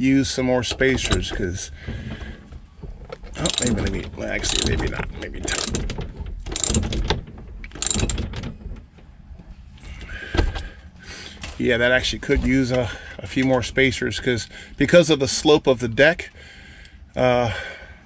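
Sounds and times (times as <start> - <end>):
socket ratchet clicking: 3.4 - 8.4.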